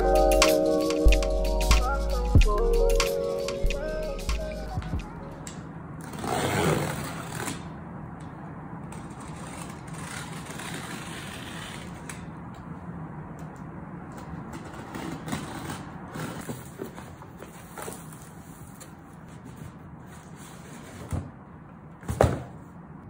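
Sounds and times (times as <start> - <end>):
low hum: 0.0 - 5.6
box cutter slicing packing tape: 6.0 - 7.7.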